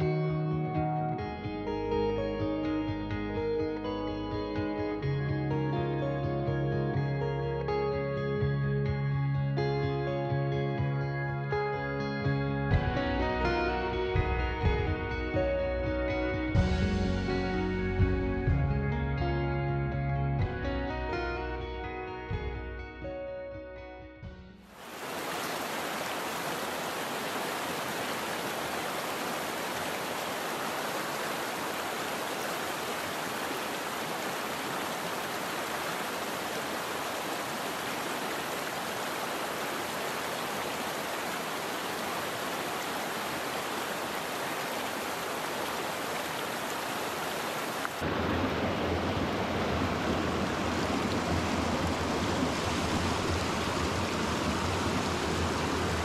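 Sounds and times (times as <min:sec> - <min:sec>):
stream rushing over rocks: 0:24.7 - 0:56.0.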